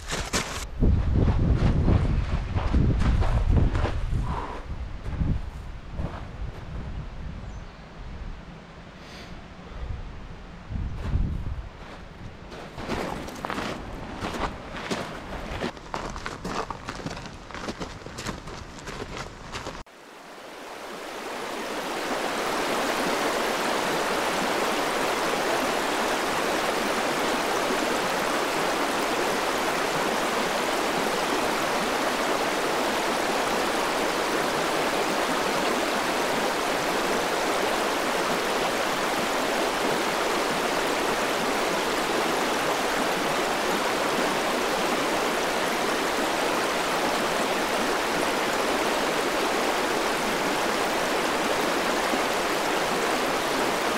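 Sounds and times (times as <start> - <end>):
stream rushing over boulders: 12.5 - 53.9.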